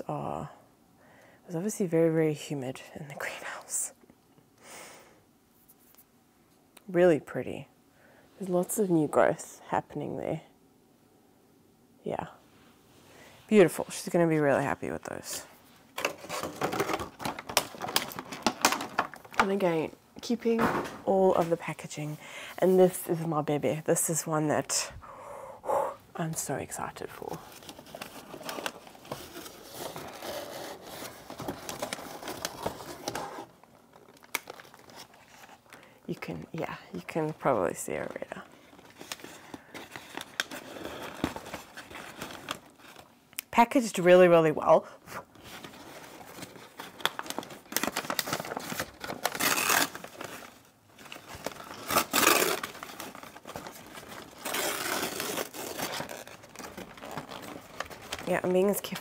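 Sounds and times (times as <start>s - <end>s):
paper rustling against cardboard: 27.4s - 35.6s, 45.4s - 59.0s.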